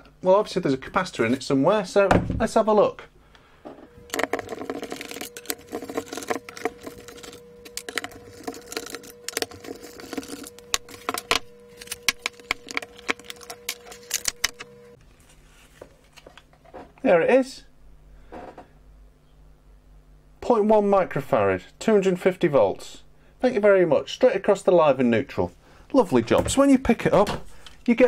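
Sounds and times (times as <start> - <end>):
faint steady hum: 0.0 - 28.0
plastic parts clicking and rattling: 4.1 - 14.6.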